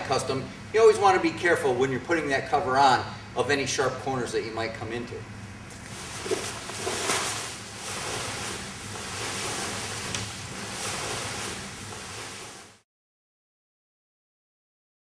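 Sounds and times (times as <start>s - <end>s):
fabric cover rustling and swishing: 5.8s - 12.8s.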